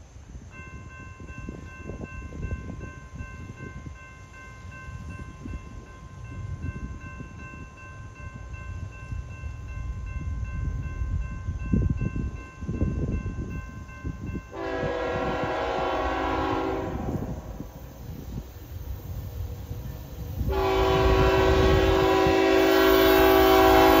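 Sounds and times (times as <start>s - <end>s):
locomotive air horn blast: 14.5s - 17.4s, 20.5s - 24.0s.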